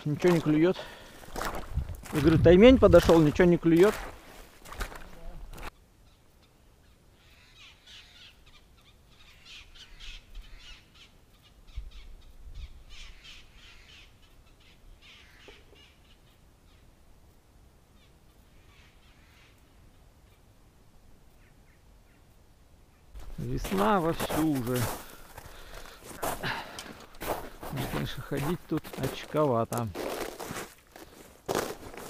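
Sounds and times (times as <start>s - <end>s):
birds calling: 5.6s - 17.0s, 17.9s - 20.5s, 21.3s - 29.9s.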